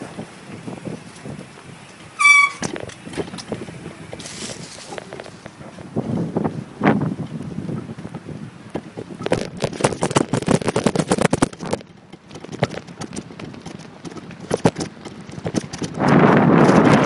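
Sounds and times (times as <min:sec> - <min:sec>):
wind noise on microphone: 0:00.0 - 0:17.0
irregular clicks and knocks: 0:08.8 - 0:16.8.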